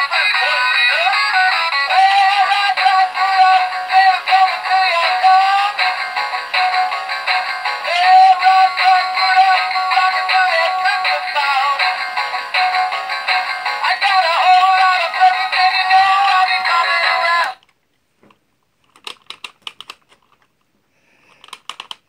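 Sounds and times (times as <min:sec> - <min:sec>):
tinny toy song with singing: 0:00.0 - 0:17.6.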